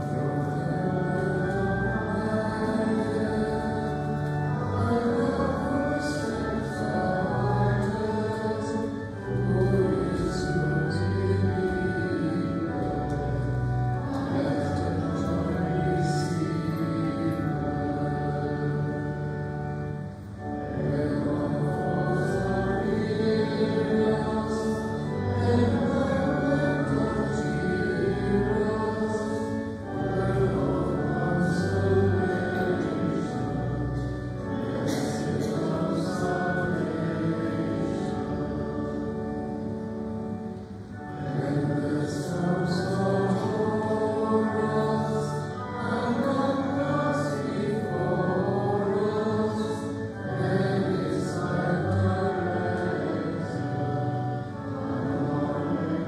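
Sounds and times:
congregation singing a hymn: 0.0s - 56.0s
sustained instrumental accompaniment: 0.0s - 56.0s.

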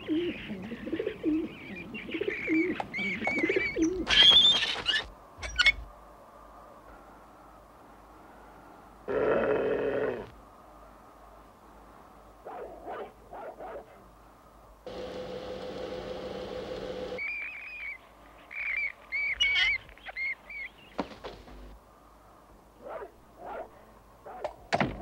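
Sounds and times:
steady hum: 14.9s - 17.2s.

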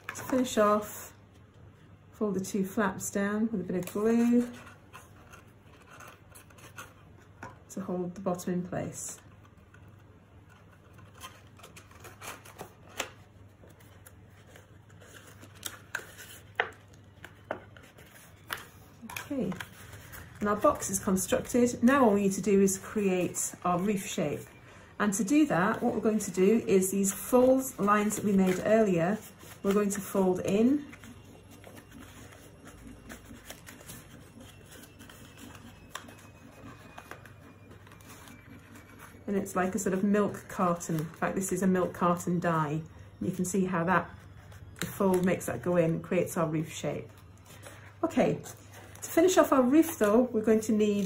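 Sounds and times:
low steady hum: 0.0s - 51.0s
card stock tapping and rustling: 9.6s - 22.0s, 27.0s - 39.1s.

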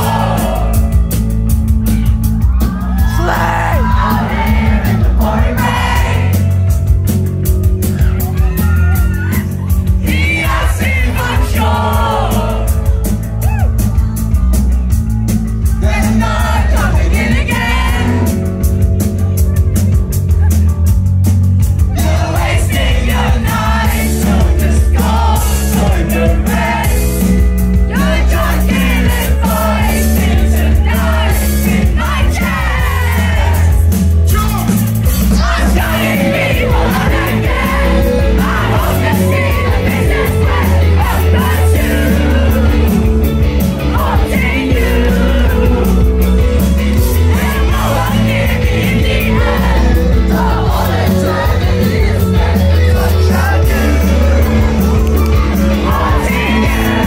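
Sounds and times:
lead singer singing: 0.0s - 1.3s, 2.8s - 6.6s, 8.5s - 13.1s, 15.6s - 18.7s, 21.9s - 57.0s
crowd shouting and singing along: 0.0s - 57.0s
live rock band playing: 0.0s - 57.0s.

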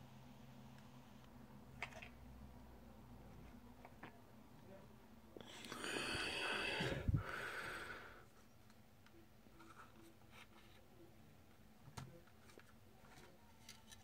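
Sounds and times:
noisy nasal breath: 5.4s - 8.3s.

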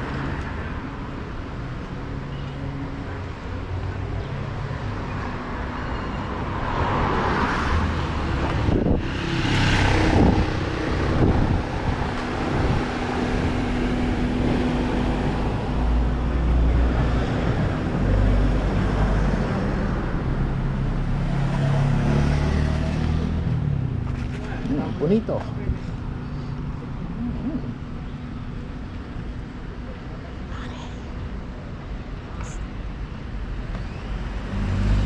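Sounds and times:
vehicles passing: 0.0s - 35.0s.

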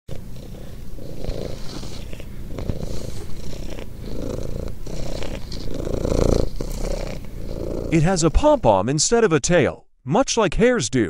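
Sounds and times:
cat purring: 0.1s - 8.8s.

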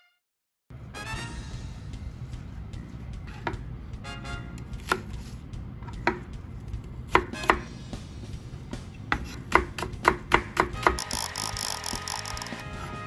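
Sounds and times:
knife cutting on wooden board: 4.8s - 5.3s, 9.1s - 10.0s.

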